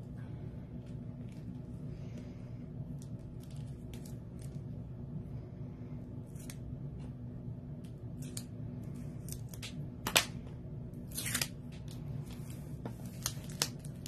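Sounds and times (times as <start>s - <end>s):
plastic film crinkle: 11.1s - 14.0s.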